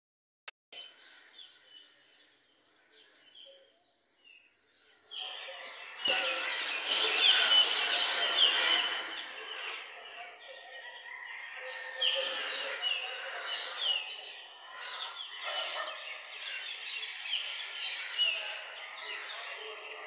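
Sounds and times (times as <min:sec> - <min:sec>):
small birds chirping: 0:00.8 - 0:20.0.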